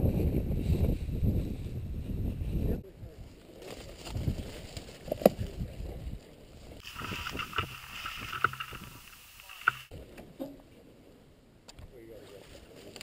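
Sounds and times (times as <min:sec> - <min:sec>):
dry grass and gear rustling: 0:03.2 - 0:10.0.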